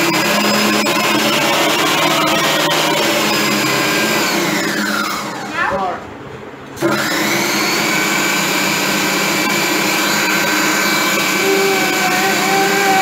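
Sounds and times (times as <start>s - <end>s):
food processor motor running: 0.0s - 5.5s, 6.8s - 13.0s.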